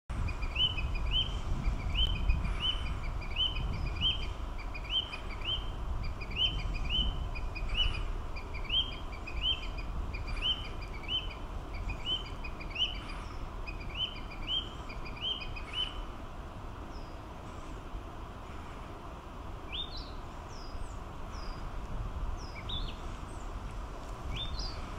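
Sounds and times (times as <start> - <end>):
bird singing whistled notes: 0.2 - 16.0, 19.7 - 21.6, 22.4 - 23.0, 24.3 - 24.8.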